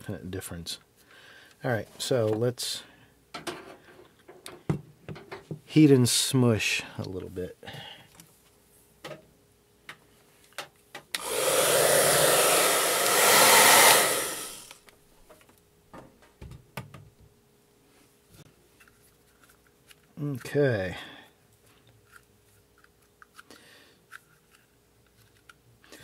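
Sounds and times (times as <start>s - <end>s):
hot-air blower rushing: 11.2s - 14.8s.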